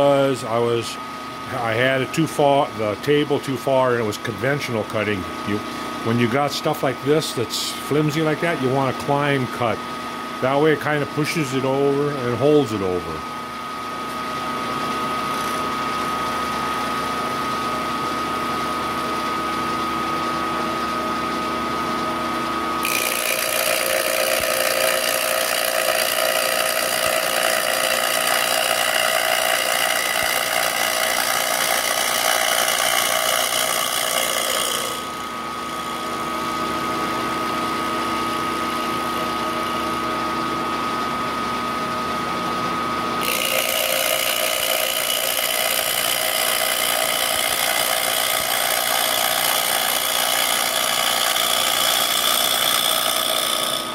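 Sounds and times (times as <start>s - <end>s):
end mill cutting metal: 22.8s - 40.0s, 43.2s - 53.9s
milling spindle whine: 22.8s - 40.5s, 43.2s - 53.9s.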